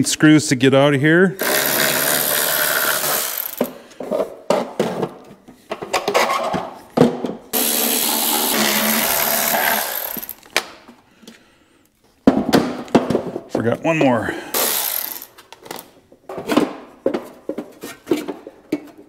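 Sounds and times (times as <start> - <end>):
electric ratchet running: 1.4 - 3.7, 7.6 - 10.5, 14.5 - 15.8.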